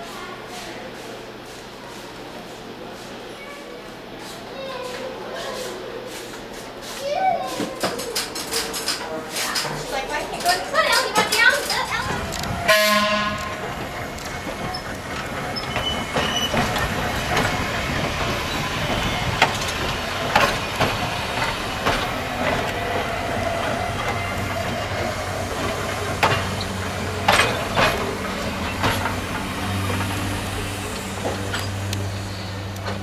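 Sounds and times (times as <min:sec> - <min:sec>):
train wheels clicking over rail joints: 0:07.5 - 0:33.0.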